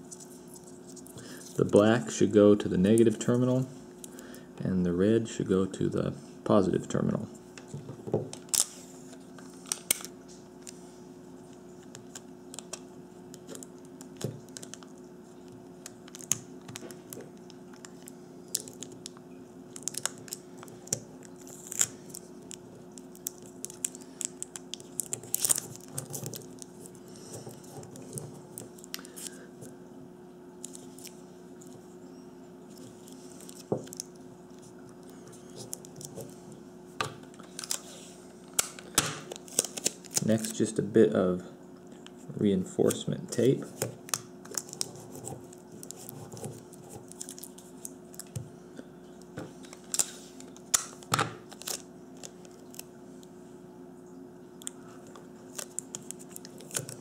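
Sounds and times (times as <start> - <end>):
tape crinkling and tearing: 8.3 - 10.8, 11.8 - 29.4, 37.3 - 40.8, 43.8 - 48.4, 49.6 - 52.9, 54.6 - 57.0.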